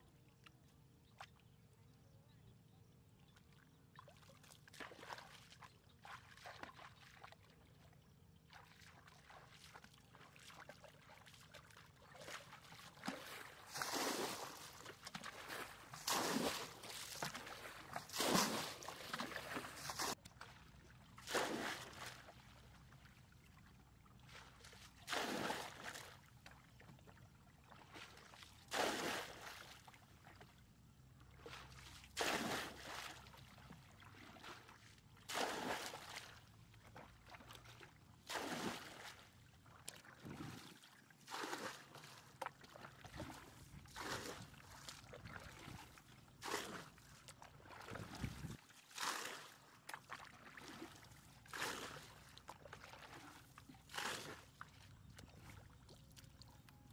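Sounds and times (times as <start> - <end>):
bucket scooping and splashing water: 8.5 - 20.6, 21.2 - 22.5, 24.2 - 26.1, 27.7 - 29.8, 31.4 - 56.2.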